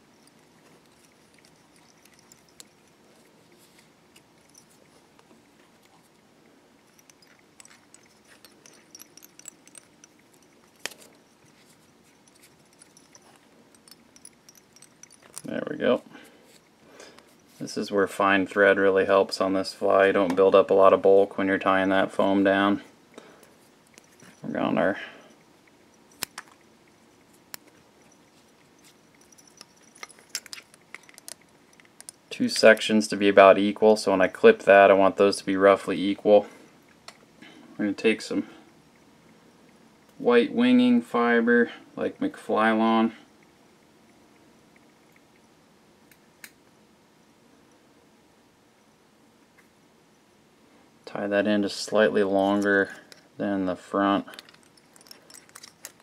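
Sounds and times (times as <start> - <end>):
thread wrapping ticks and clicks: 0.0 - 6.2, 6.8 - 15.6, 25.2 - 33.1, 54.3 - 56.0
faint ticks and rustles: 0.0 - 46.8, 50.7 - 56.0.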